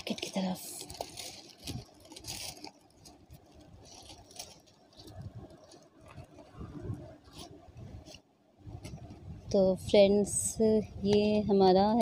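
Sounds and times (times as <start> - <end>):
paper wrap rustling and crinkling: 0.0 - 8.3.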